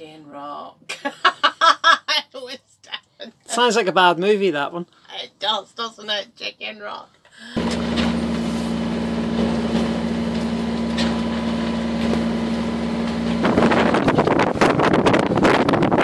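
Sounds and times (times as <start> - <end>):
low mechanical hum: 7.6 - 16.0
wind buffeting microphone: 13.4 - 16.0.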